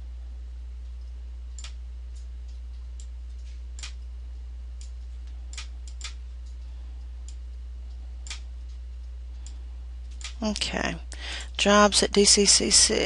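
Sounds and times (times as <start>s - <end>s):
steady low hum: 0.0s - 13.0s
computer mouse clicking: 1.0s - 4.1s, 4.8s - 6.6s.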